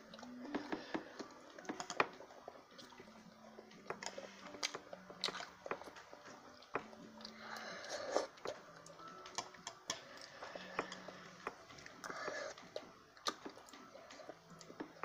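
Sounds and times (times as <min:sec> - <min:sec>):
child chewing: 0:00.0 - 0:15.0.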